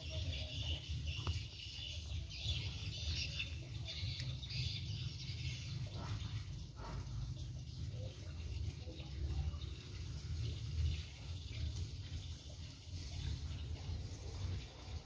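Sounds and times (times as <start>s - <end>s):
small birds chirping: 0.0s - 15.0s.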